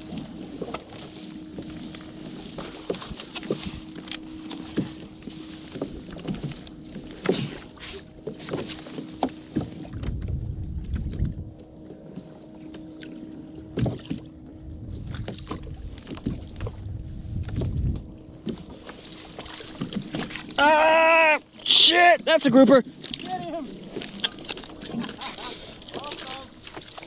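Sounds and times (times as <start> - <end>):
knocks and clicks from boat: 0.0 - 20.7, 21.4 - 27.0
water lapping against kayak hull: 0.0 - 27.0.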